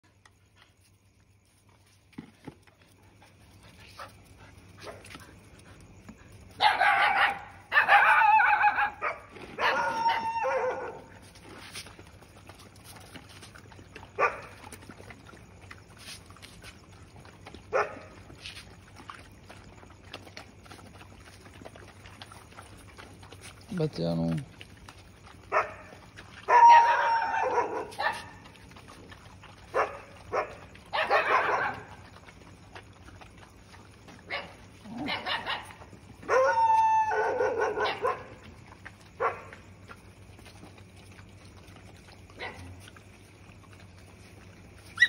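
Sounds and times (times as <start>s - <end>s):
dogs crying high-pitched: 6.6s - 11.2s, 25.5s - 28.5s, 29.7s - 32.0s, 34.3s - 38.4s, 44.8s - 45.0s.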